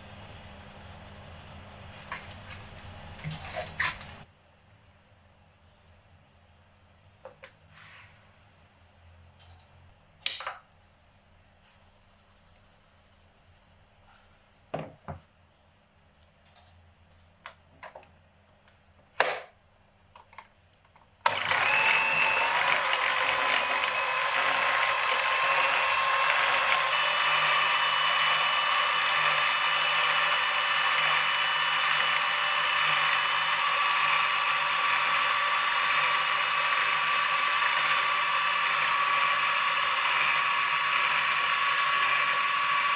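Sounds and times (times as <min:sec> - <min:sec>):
stand mixer motor whining: 0:21.3 - 0:42.9.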